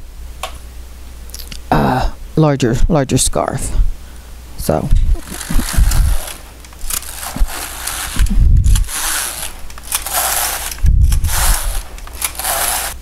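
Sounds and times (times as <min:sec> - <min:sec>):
knitting machine rasping swish: 0:05.1 - 0:13.0.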